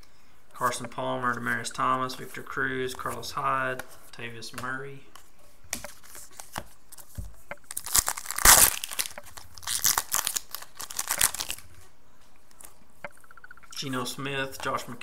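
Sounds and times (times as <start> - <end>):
foil wrapper crinkling: 7.6 - 11.7
foil pack tearing: 7.7 - 11.6.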